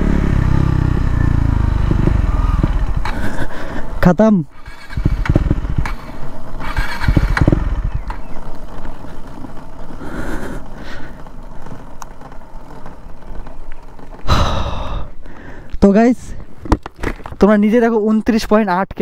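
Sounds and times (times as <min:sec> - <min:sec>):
tyre noise on road: 0:00.0 - 0:17.8
low rumbling thumps: 0:00.4 - 0:03.4, 0:05.0 - 0:05.9.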